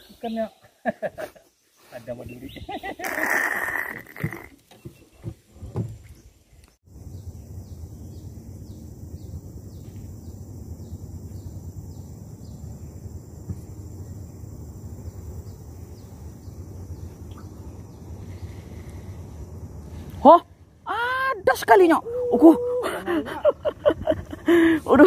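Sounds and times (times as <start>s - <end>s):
steady low hum: 6.9s - 25.0s.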